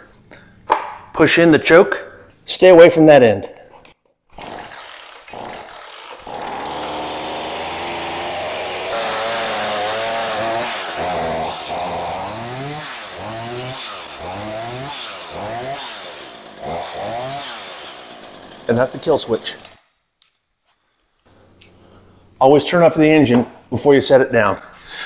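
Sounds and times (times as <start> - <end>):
chainsaw engine revving: 4.4 - 19.8.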